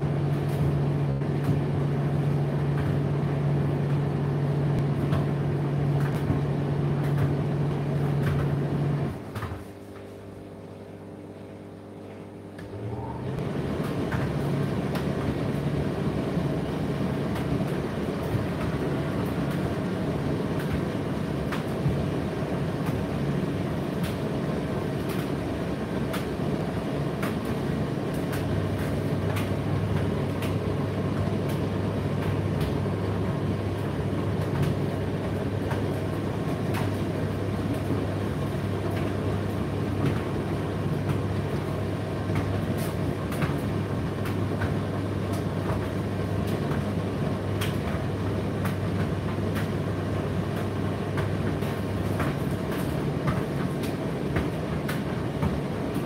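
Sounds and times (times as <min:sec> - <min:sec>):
deeper hum: 0:00.0 - 0:56.0
tumble dryer motor and fan hum: 0:00.0 - 0:56.0
light clicks of tumbling load: 0:13.4 - 0:56.0.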